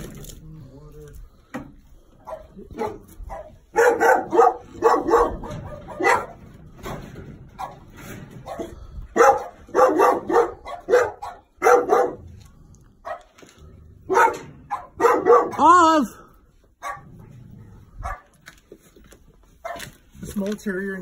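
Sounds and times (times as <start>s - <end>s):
dog barking: 2.2s - 6.4s, 7.6s - 7.8s, 8.4s - 12.3s, 13.0s - 13.3s, 14.1s - 15.7s, 16.8s - 17.1s, 18.0s - 18.3s, 19.6s - 20.0s.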